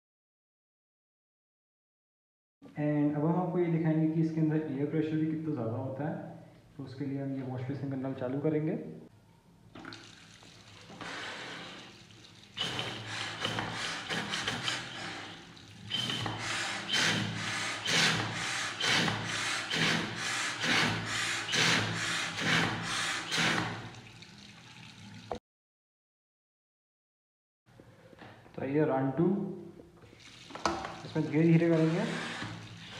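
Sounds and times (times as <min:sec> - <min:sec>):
tap water running into basin: 0:09.7 - 0:25.4, 0:30.0 - 0:32.9.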